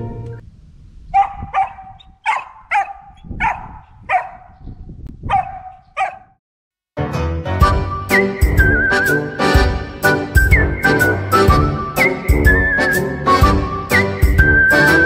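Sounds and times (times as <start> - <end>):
music: 0.0 - 0.4, 7.0 - 15.0
dog barking in sharp yips: 1.1 - 4.6, 5.2 - 6.4.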